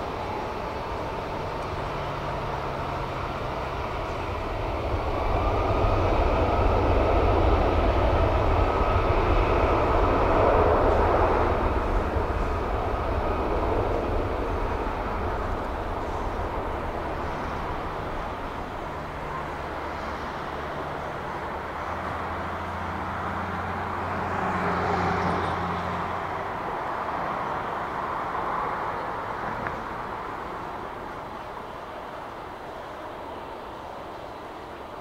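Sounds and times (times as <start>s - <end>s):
jet engines rushing: 0.0s - 35.0s.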